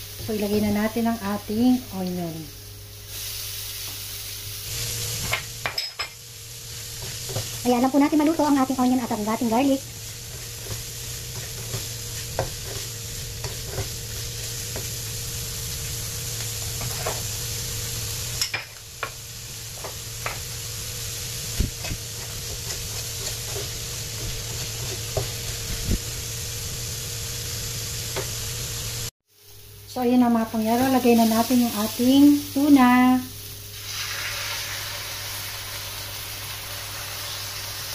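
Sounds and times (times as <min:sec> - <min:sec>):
onion sizzling in butter: 0:00.0 - 0:37.9
spatula tapping and scraping: 0:10.3 - 0:14.0, 0:21.8 - 0:25.4.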